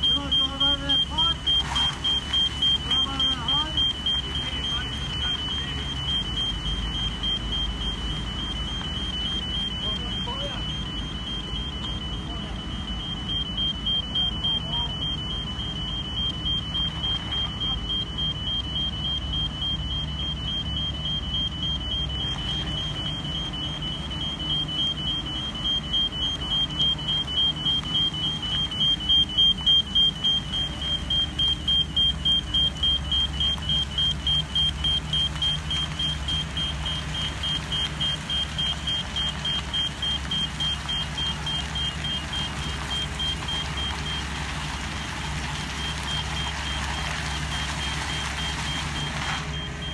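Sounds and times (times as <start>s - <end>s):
high-pitched warning beeper: 0.0s - 49.9s
vehicle engine running: 0.0s - 49.9s.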